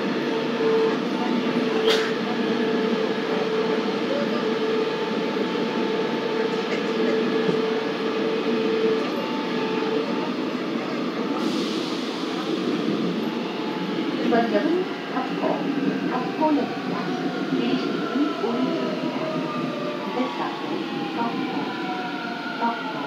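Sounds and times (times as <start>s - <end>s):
steady train hum: 0.0s - 23.0s
train wheels rumbling on rail: 0.0s - 23.0s
train hiss: 11.2s - 15.2s.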